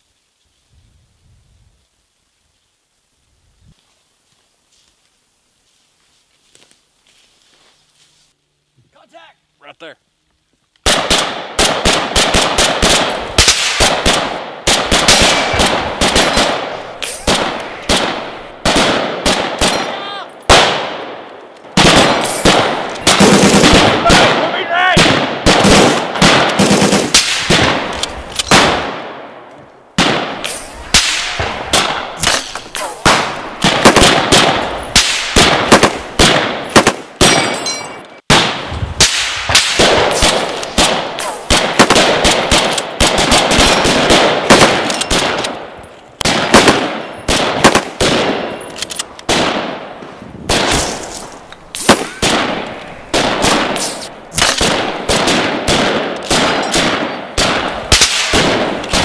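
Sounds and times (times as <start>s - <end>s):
single rifle shots: 10.8s - 37.6s, 38.3s - 59.0s
automatic gunfire bursts: 10.9s - 19.8s, 21.8s - 29.0s, 30.0s - 37.4s, 39.6s - 45.5s, 46.2s - 48.5s, 51.8s - 59.0s.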